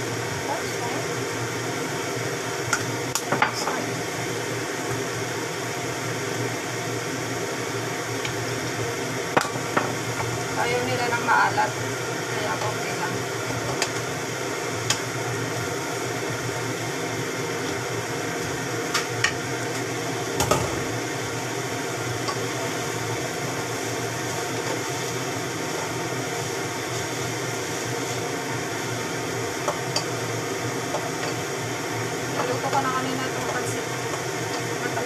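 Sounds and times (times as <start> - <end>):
vegetables sizzling in wok: 0.0 - 35.0.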